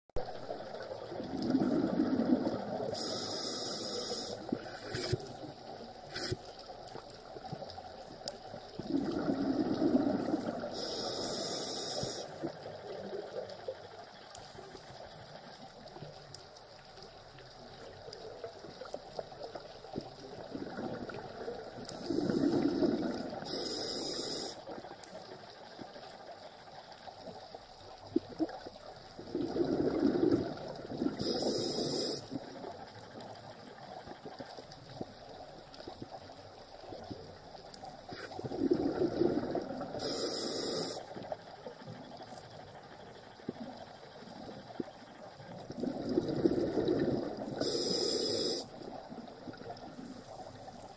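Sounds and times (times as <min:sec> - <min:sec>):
faint underwater hiss: 0:00.2 - 0:50.9
diver breathing through regulator: 0:01.5 - 0:05.2, 0:08.9 - 0:12.4, 0:21.9 - 0:24.6, 0:29.4 - 0:32.4, 0:38.1 - 0:41.1, 0:46.2 - 0:48.7.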